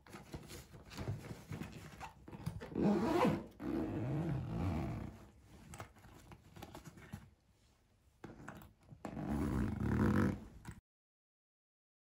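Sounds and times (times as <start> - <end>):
zipper being pulled closed: 2.6 - 5.2, 8.2 - 10.8.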